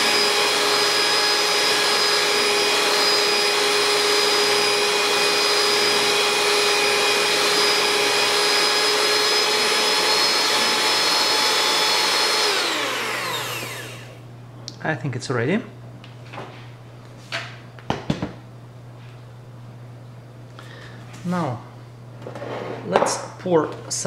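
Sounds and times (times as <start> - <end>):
electric hand mixer whining: 0.0 - 14.2.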